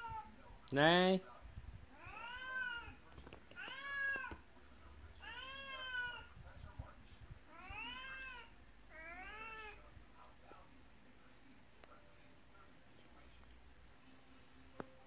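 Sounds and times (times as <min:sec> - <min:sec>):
cat meowing: 0:00.0 - 0:00.3, 0:02.0 - 0:03.0, 0:03.6 - 0:04.4, 0:05.2 - 0:06.3, 0:07.5 - 0:09.8.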